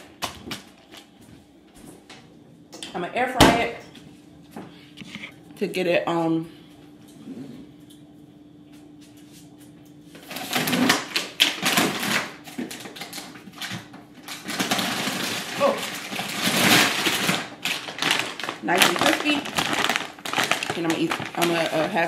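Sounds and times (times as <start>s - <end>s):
faint steady hum: 0.0s - 22.0s
frozen items clattering: 10.2s - 22.0s
plastic packaging rustling: 10.2s - 22.0s.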